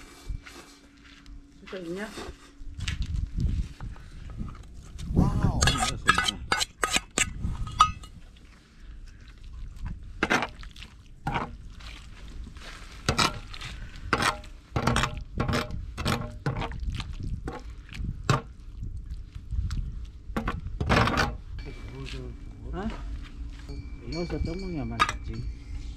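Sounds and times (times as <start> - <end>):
liquid sloshing in a pot: 9.2 - 20.9.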